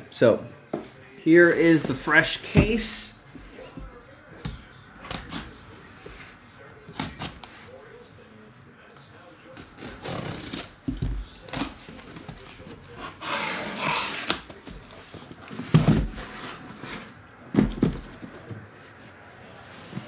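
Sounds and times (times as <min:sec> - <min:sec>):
boxes knocking and thumping: 0:01.8 - 0:03.1, 0:15.4 - 0:18.7
cardboard flaps scraping and rustling: 0:09.6 - 0:19.1.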